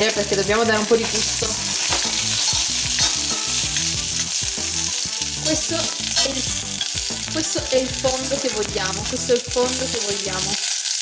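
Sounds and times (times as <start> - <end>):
onions sizzling in oil: 0.0 - 11.0
metal tongs clinking on pot: 1.0 - 4.3, 5.8 - 7.5.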